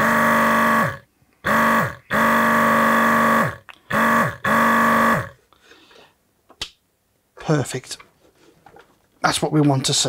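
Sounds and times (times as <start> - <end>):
vacuum pump buzzing: 0.0 - 5.4.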